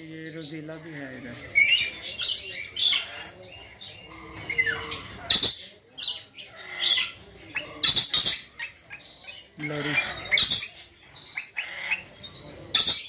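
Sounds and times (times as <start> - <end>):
caged birds chirping and squawking: 0.0 - 13.0.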